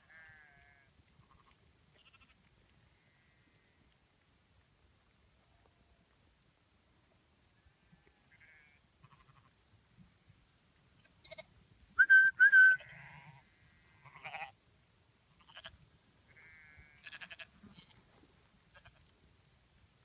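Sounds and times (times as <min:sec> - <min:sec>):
sheep bleating: 0:00.0 - 0:02.4, 0:07.6 - 0:09.5, 0:12.6 - 0:14.6, 0:15.4 - 0:15.7, 0:16.3 - 0:18.0
short loud whistle notes: 0:12.0 - 0:12.8.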